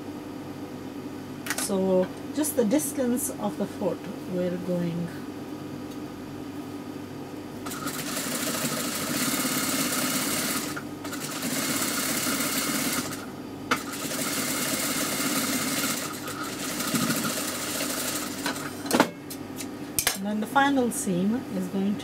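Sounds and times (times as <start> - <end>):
sewing machine stitching: 7.7 - 18.7.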